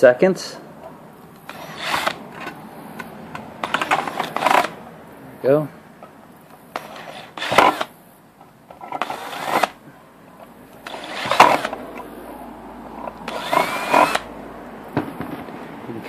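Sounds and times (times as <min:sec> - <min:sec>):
electric drill boring through metal: 0:01.5 - 0:02.2, 0:03.6 - 0:04.7, 0:06.8 - 0:07.9, 0:09.0 - 0:09.8, 0:10.8 - 0:11.8, 0:13.2 - 0:14.3.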